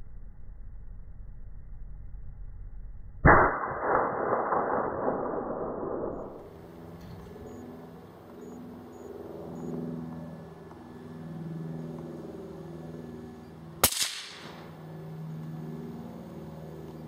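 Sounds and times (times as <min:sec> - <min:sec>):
gunshot with echo: 0:13.8 - 0:14.7.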